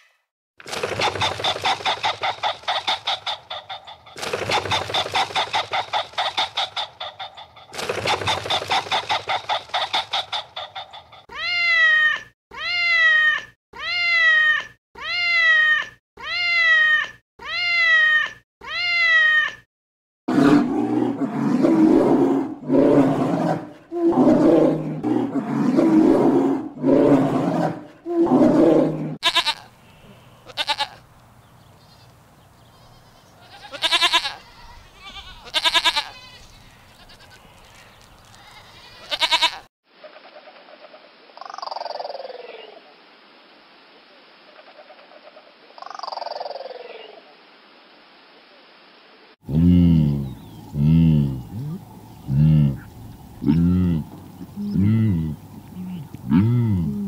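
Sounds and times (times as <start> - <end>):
lower rough animal calls: 49.5 - 57.0.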